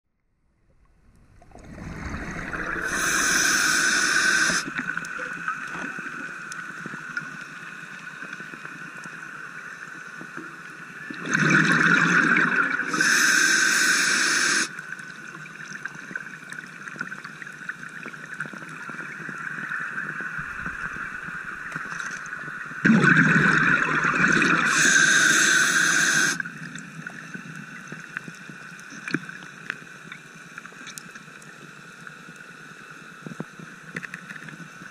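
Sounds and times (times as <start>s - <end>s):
faint hum: 0.2s - 34.9s
underwater hiss: 1.6s - 5.0s, 11.3s - 14.8s, 24.2s - 26.5s
diver breathing through regulator: 1.8s - 4.7s, 12.9s - 14.7s, 24.6s - 26.4s.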